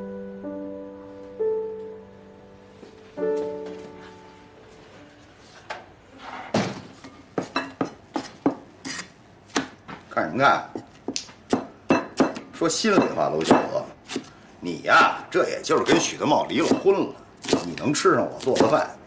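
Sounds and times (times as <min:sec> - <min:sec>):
soft piano music: 0:00.0 - 0:05.6
cleaver chopping on wooden block: 0:07.4 - 0:09.8, 0:10.8 - 0:14.3, 0:18.4 - 0:18.8.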